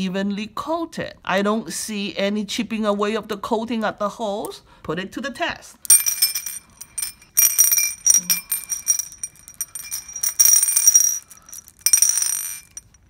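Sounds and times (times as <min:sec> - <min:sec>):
glass beads rolling in ceramic dish: 0:05.9 - 0:13.0.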